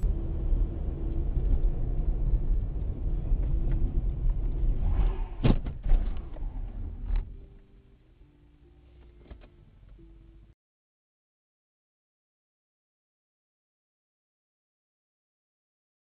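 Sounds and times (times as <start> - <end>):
car engine low rumble: 0.0 - 10.6.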